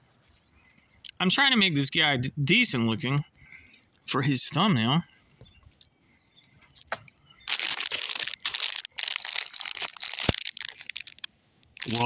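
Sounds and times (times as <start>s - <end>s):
foil wrapper crinkling: 6.7s - 12.0s.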